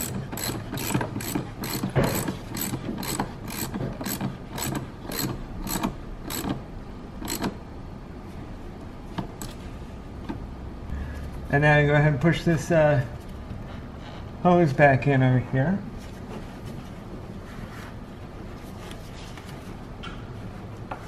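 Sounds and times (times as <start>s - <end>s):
socket ratchet clicking: 0.0s - 6.6s, 7.2s - 7.6s.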